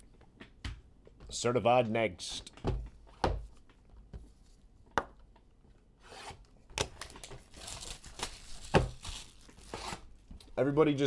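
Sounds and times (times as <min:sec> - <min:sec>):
plastic wrapping crinkling and tearing: 0:07.0 - 0:10.2.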